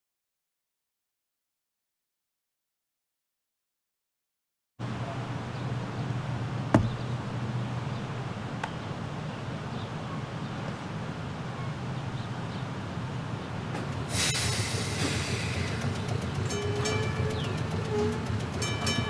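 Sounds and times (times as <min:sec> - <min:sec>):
outdoor background noise: 0:04.8 - 0:19.0.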